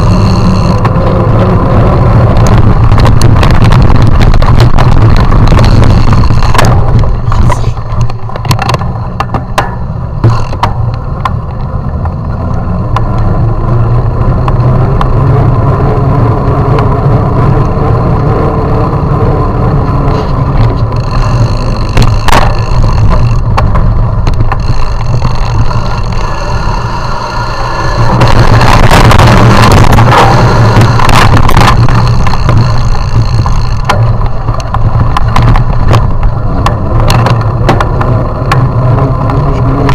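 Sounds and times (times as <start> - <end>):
faint steady whine: 0.0 - 39.9
wheels rolling on brick path: 0.0 - 39.9
wind rumble: 0.0 - 39.9
clicks and rattles from bumps: 2.4 - 12.2, 20.1 - 39.9.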